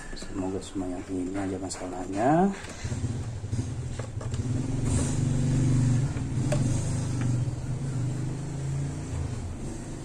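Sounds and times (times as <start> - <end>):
vehicle engine running: 2.7 - 10.0.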